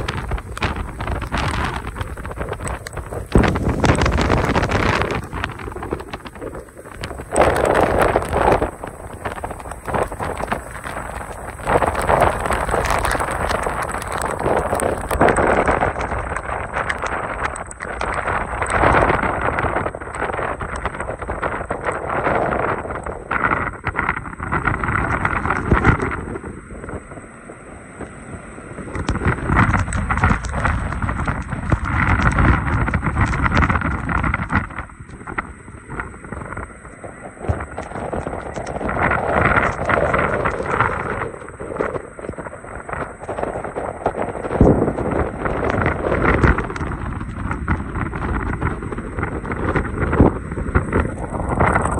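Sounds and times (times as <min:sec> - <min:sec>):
strong wind buffeting microphone: 0:00.0 - 0:51.9
waves breaking: 0:00.0 - 0:51.9.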